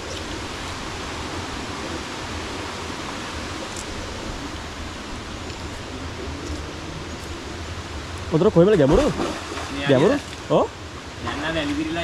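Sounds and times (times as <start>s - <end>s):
waterfall roaring: 0.0s - 12.0s.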